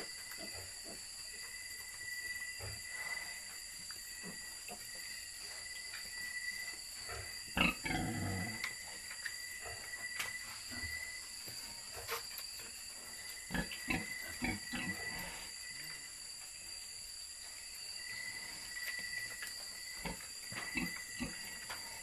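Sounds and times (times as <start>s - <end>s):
deep pig grunt: 7.5s - 8.6s.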